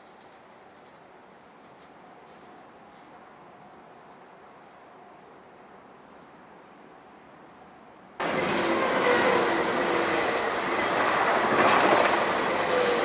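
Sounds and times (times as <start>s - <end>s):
electric train rushing on rails: 0.0s - 13.0s
held whining tones: 8.2s - 13.0s.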